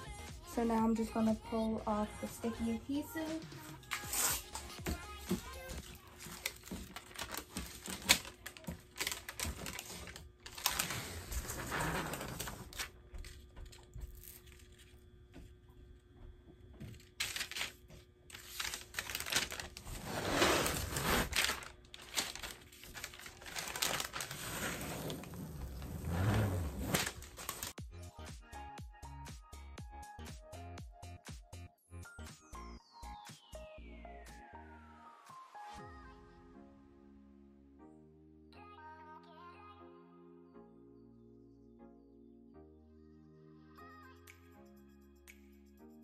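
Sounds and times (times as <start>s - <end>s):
backing paper peeling crackle: 5.6s - 15.0s, 16.9s - 27.8s.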